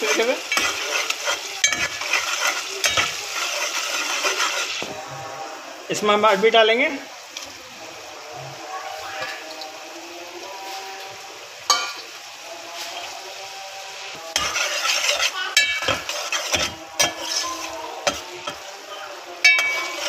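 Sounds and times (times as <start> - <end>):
metal spoon knocking and scraping pot: 0.0 - 4.9, 14.3 - 17.4, 19.4 - 20.0
gravy sizzling: 0.0 - 20.0
spoon clinking on pot: 1.6 - 3.2, 11.7 - 12.0, 14.4 - 17.3, 19.4 - 20.0.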